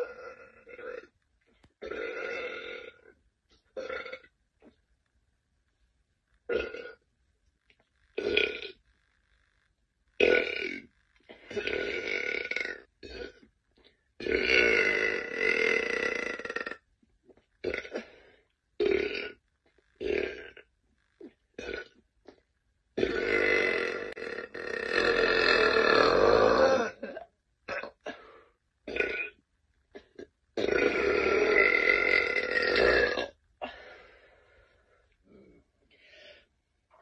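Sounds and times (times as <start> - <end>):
woman burping: 11.4 - 13.4, 17.6 - 18.2, 21.2 - 22.0, 23.0 - 28.3, 30.0 - 33.8.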